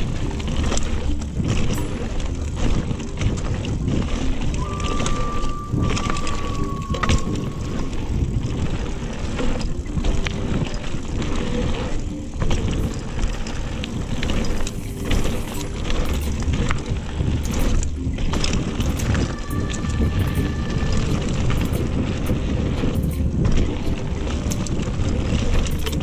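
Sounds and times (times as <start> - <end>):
bike clicks and rattles: 0.0 - 26.0
wind rushing over microphone: 0.0 - 26.0
tyre roar: 4.6 - 8.2.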